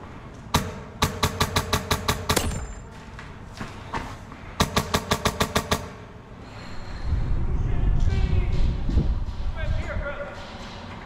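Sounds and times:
airsoft rifle firing: 0.5 - 2.9, 4.6 - 6.0.

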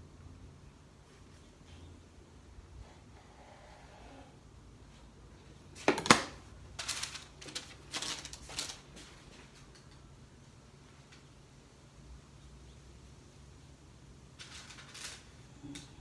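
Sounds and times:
paper rustling and crinkling: 5.8 - 9.9, 14.4 - 16.0.

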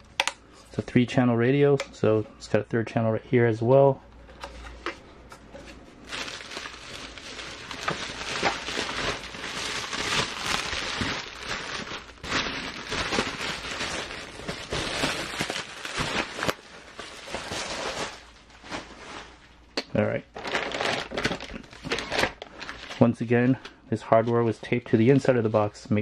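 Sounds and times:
plastic packaging crinkling: 6.0 - 19.6, 20.3 - 23.2.

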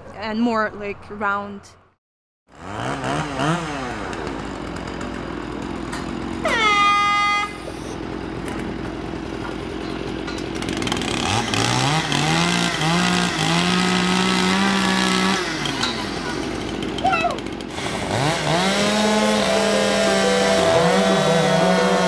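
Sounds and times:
chainsaws revving: 2.5 - 22.0
air horn blast: 6.4 - 7.9, 18.9 - 22.0.

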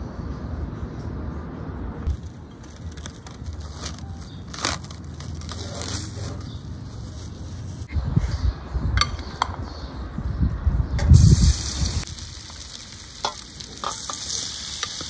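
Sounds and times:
cling film crinkling: 2.1 - 7.9, 11.5 - 15.0.

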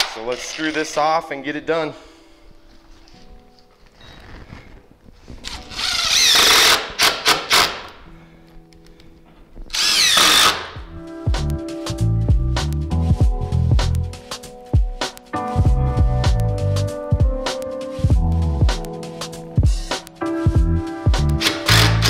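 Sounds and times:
cordless drill driving screws: 5.5 - 8.0, 9.7 - 10.8, 21.4 - 22.0
background music with a beat: 10.8 - 22.0.

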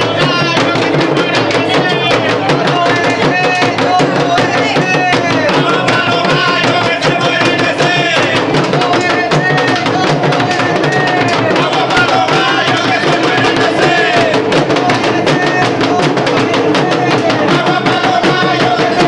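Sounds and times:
drums beaten in dense rhythm: 0.0 - 19.0
people singing: 0.0 - 19.0.

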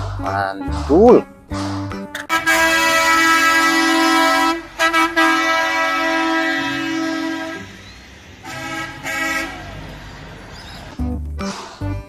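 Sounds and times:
truck horn blasts: 2.2 - 10.8.

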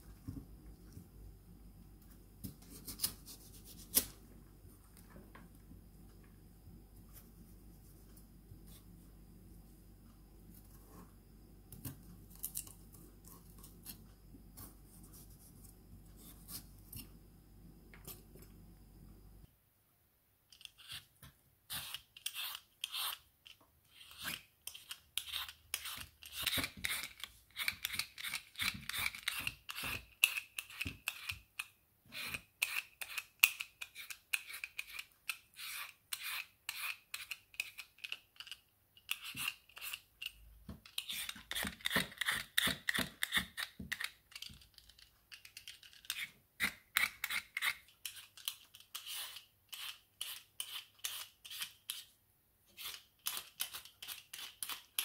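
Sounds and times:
vegetable peeler scraping skin: 21.7 - 44.4, 45.8 - 52.1, 52.8 - 55.0.

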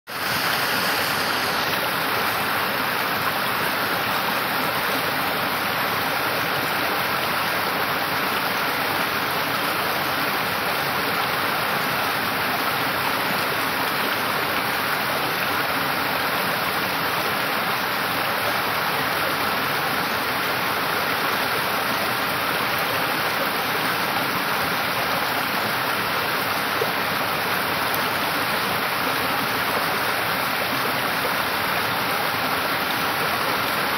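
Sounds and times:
stream water rushing and splashing: 0.1 - 33.9.

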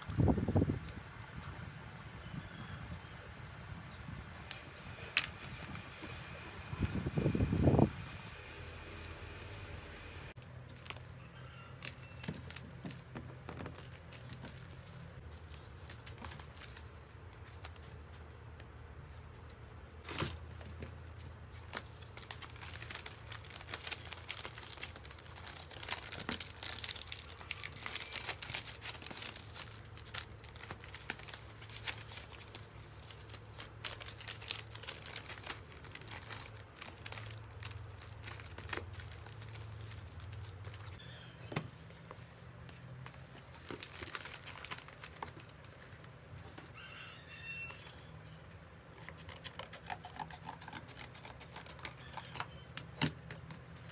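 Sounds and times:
steady low hum: 2.9 - 10.6
plastic mailers crinkling and rustling: 10.3 - 19.4, 20.0 - 46.2.

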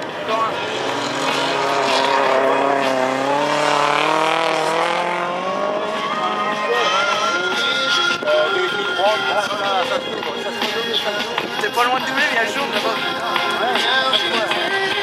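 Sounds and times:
race car engine revving: 0.0 - 8.2.

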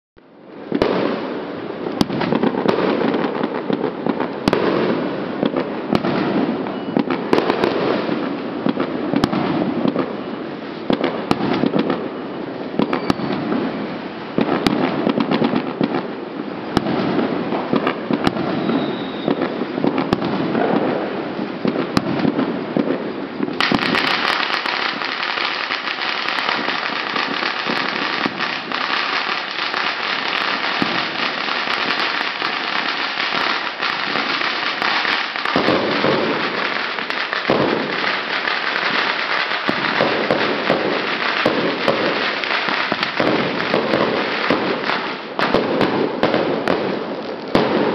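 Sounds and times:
fireworks crackling bangs: 0.4 - 47.9.

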